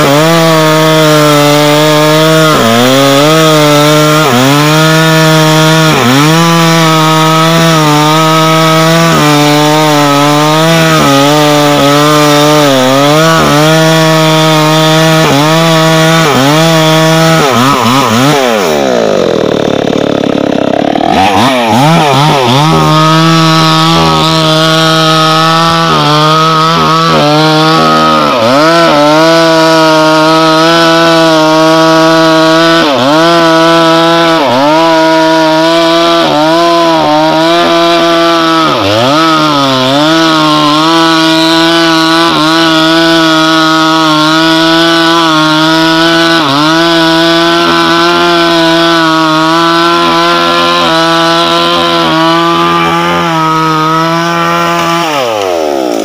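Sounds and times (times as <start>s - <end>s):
chainsaw cutting into tree trunk: 0.0s - 56.0s.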